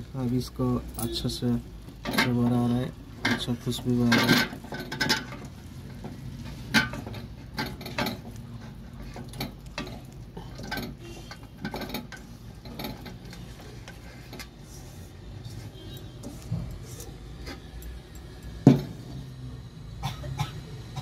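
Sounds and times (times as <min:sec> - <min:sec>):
metal wok clinking and knocking: 0:01.9 - 0:14.5.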